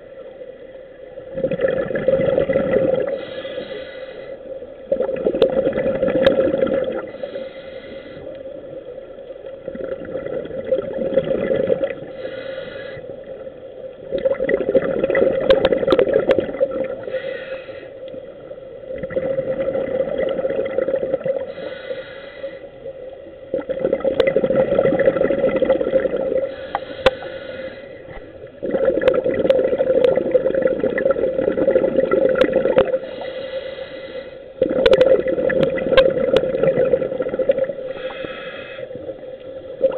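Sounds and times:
steady hum: 0.0s - 39.9s
exhaled bubbles underwater: 1.2s - 3.8s, 4.7s - 7.6s, 8.2s - 17.4s, 18.0s - 22.0s, 22.8s - 27.4s, 28.0s - 33.3s, 34.6s - 39.9s
regulator inhale hiss: 3.0s - 4.6s, 7.0s - 8.6s, 12.0s - 13.4s, 17.0s - 18.3s, 21.4s - 22.9s, 26.4s - 28.3s, 32.9s - 34.6s, 37.8s - 39.6s.

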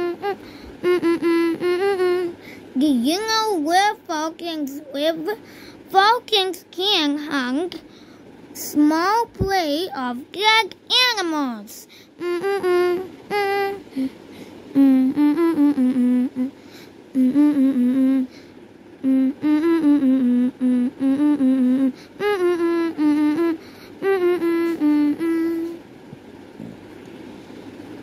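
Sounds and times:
person humming: 0.0s - 3.4s, 12.2s - 18.4s, 19.0s - 25.8s.

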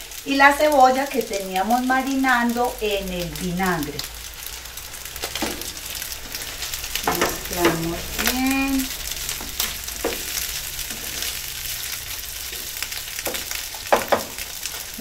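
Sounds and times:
rice sizzling in a pan: 0.0s - 15.0s
spatula scraping a pan: 5.2s - 15.0s.

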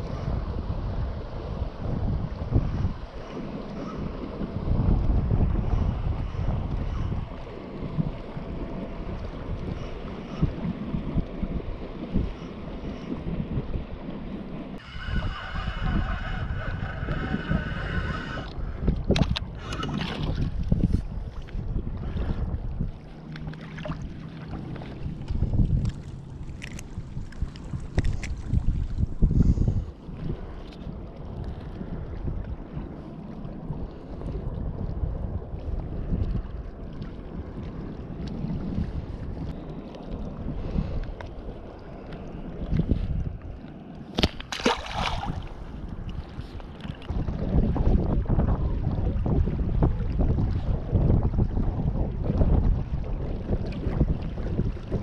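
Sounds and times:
wind buffeting microphone: 0.0s - 55.0s
fish splashing into water: 44.1s - 45.6s.

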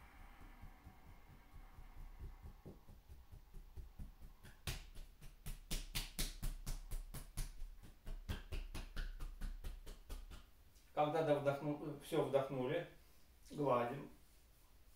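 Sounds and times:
hands patting bare chest: 2.2s - 10.6s.

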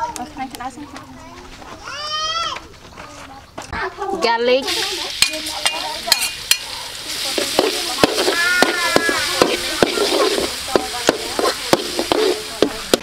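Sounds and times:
garlic sizzling in oil: 4.6s - 13.0s
ladle scraping a pan: 4.7s - 13.0s.

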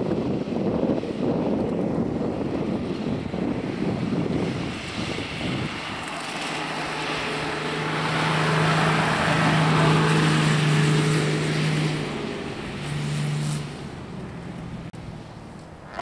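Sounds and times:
vehicle engine driving past: 5.0s - 16.0s.

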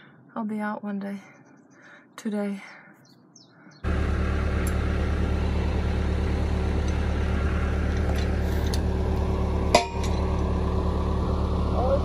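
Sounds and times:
tractor diesel engine idling: 3.8s - 12.0s.

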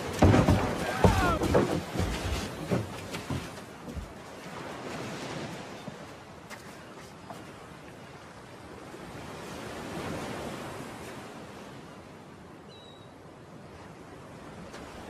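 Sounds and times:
sea surf washing onto shore: 0.0s - 12.0s.

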